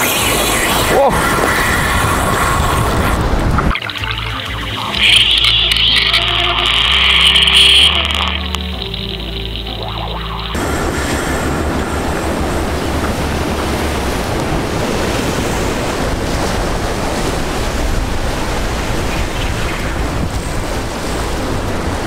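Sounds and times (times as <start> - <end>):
wind buffeting microphone: 0.0 - 3.8, 10.6 - 22.0
surf breaking on rocks: 0.0 - 9.4, 10.5 - 22.0.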